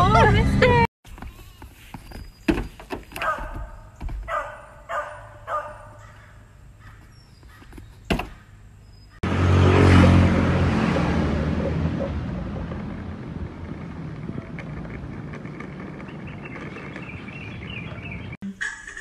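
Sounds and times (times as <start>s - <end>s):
skateboard wheels rolling on asphalt: 11.0s - 18.4s.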